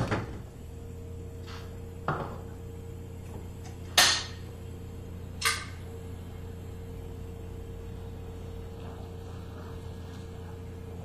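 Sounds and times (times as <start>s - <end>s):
refrigerator door opening thud: 0.0s - 0.5s
refrigerator humming: 0.0s - 11.0s.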